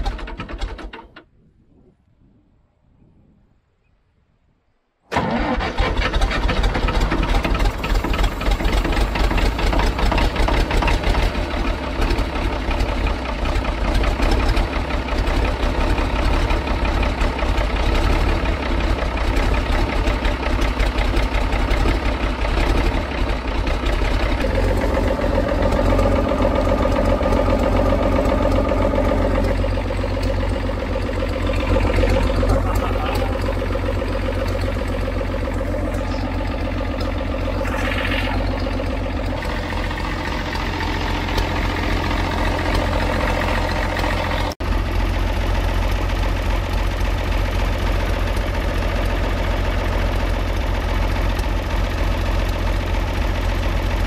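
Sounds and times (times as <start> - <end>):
diesel engine running rough: 0.0 - 1.0, 5.1 - 54.0.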